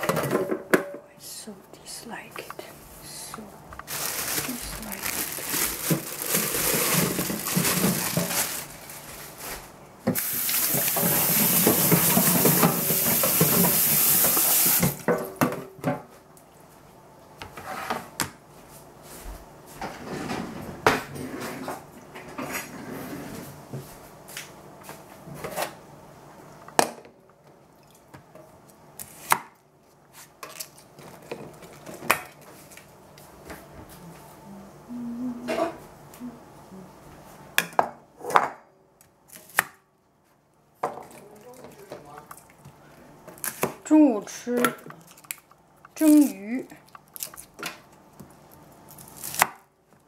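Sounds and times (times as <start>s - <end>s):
tap water running into pot: 10.2s - 15.1s.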